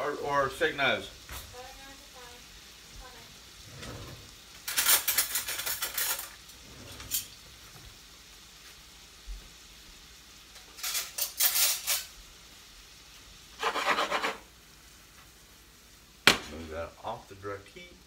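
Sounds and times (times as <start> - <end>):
frying pan scraped and shaken: 3.6 - 7.5, 10.8 - 12.1, 13.6 - 14.5
metal kitchenware clattering: 3.7 - 7.4, 10.8 - 12.1.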